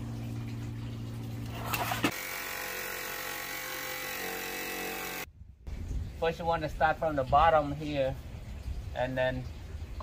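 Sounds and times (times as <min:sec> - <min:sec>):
low steady hum: 0:00.0 - 0:02.1
power cutter slicing sheet metal: 0:01.8 - 0:05.3.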